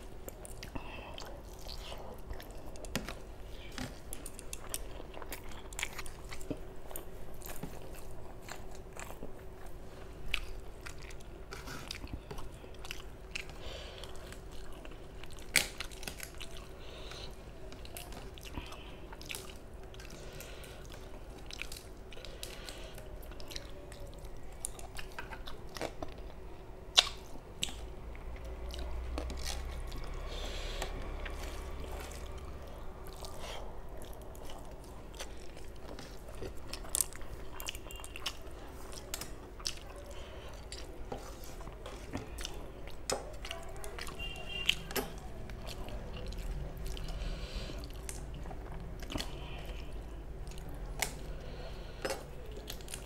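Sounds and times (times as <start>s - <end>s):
close chewing and mouth clicks: 0.0s - 53.0s
faint steady hum: 0.0s - 53.0s.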